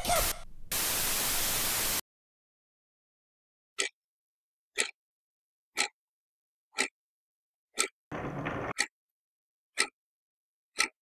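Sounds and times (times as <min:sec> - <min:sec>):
static hiss: 0:00.1 - 0:02.0
clock ticking: 0:03.8 - 0:04.0, 0:04.7 - 0:05.0, 0:05.7 - 0:06.0, 0:06.7 - 0:07.0, 0:07.7 - 0:08.9, 0:09.7 - 0:10.0, 0:10.7 - 0:11.0.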